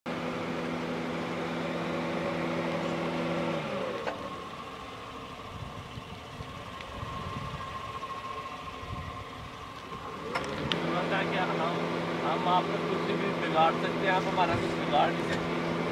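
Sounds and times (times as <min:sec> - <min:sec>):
car engine humming: 0:00.1 - 0:15.9
steady high tone: 0:00.8 - 0:14.5
low rumble: 0:04.2 - 0:12.0.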